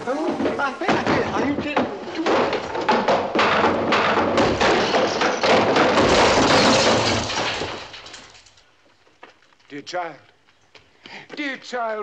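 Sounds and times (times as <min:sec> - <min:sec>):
things crashing and breaking: 0:00.4 - 0:08.7.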